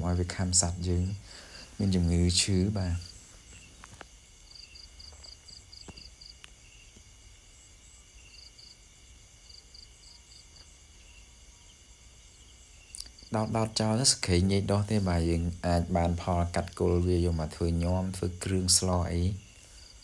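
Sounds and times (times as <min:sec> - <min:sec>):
insect chirping in short pulses: 0:00.0 - 0:20.0
steady high insect buzz: 0:00.0 - 0:20.0.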